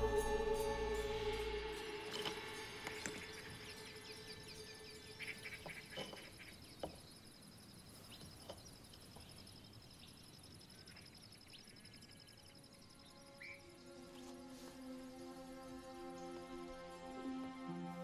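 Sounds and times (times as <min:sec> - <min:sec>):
insect chirring: 0:00.0 - 0:14.2.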